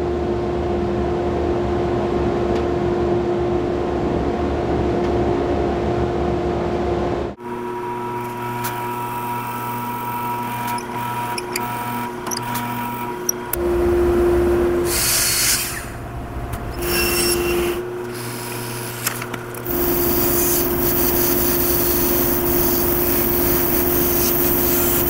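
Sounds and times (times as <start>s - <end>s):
drill press boring into wood: 8.4s - 13.6s, 16.8s - 25.0s
band saw cutting wood: 8.4s - 25.0s.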